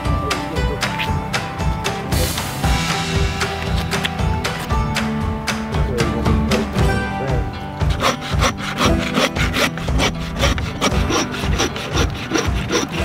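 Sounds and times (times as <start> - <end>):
background music: 0.0 - 13.0
saw cutting through bone: 7.8 - 13.0.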